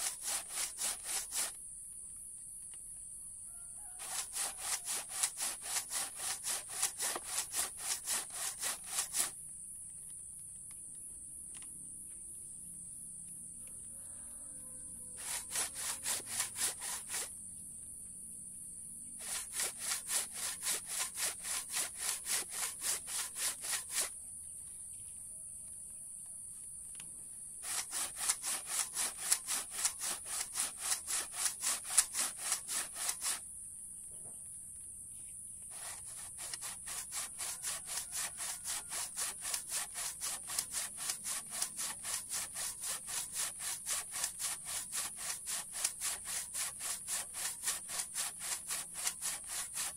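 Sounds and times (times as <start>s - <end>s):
hand saw cutting wood: 0.0s - 1.6s, 3.8s - 9.4s, 15.1s - 17.3s, 19.1s - 24.2s, 27.6s - 33.4s, 35.7s - 49.9s.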